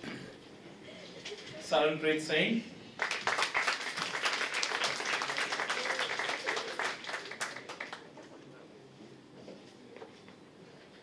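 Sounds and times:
audience applauding: 0:03.0 - 0:08.3.

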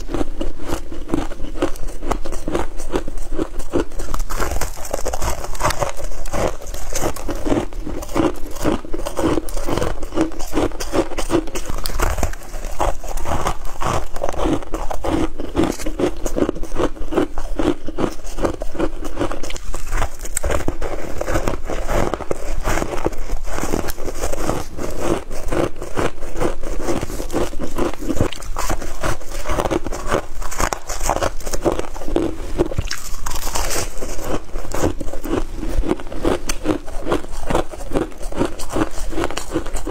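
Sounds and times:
crunching frost chunks: 0:00.0 - 0:39.9.

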